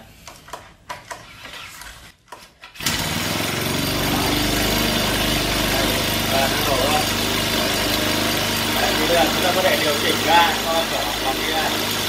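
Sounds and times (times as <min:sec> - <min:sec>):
small engine idling: 0:02.8 - 0:12.0.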